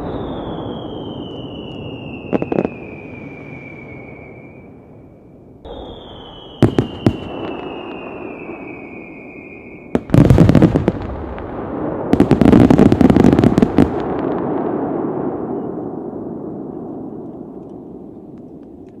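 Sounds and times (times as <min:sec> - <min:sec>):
firework bangs: 0:00.0 - 0:04.7, 0:05.7 - 0:18.5
firework whistle falling in pitch: 0:00.0 - 0:05.0, 0:05.6 - 0:10.2
firework crackling: 0:05.7 - 0:15.4.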